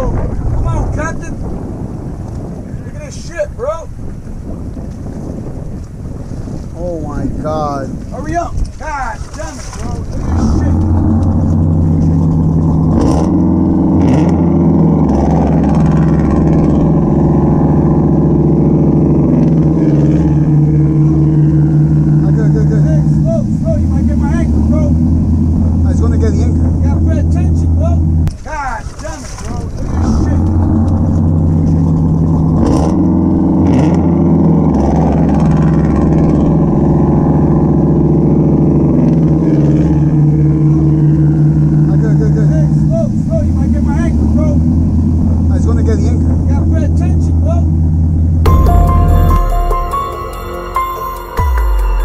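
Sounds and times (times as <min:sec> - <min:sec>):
boat engines droning: 0:00.0 - 0:52.0
propeller wash churning: 0:06.7 - 0:47.6.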